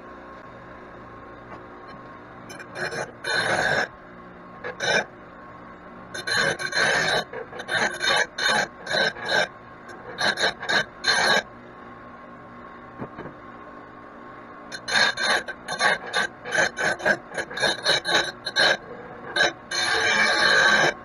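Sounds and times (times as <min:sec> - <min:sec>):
metal file rasping on steel: 0:02.5 - 0:03.9, 0:06.2 - 0:11.4, 0:14.7 - 0:21.0.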